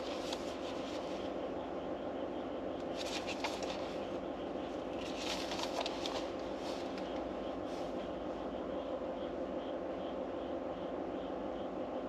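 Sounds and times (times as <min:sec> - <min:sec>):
soft rustling: 0:00.0 - 0:01.3, 0:03.0 - 0:04.0, 0:05.0 - 0:08.0.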